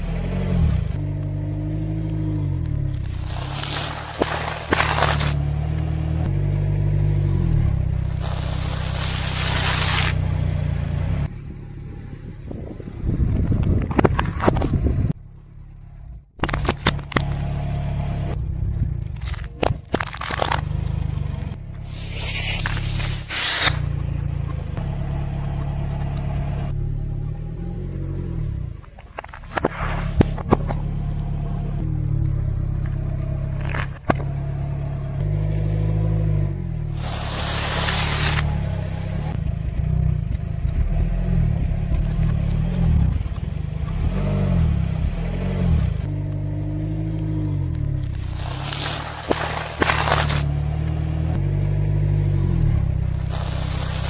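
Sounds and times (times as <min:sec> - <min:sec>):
car rumbling: 0:00.0 - 0:54.0
brittle things crunching under tyre: 0:01.0 - 0:06.2, 0:08.0 - 0:10.2, 0:18.8 - 0:21.5, 0:36.9 - 0:38.8, 0:46.1 - 0:51.4, 0:52.8 - 0:54.0.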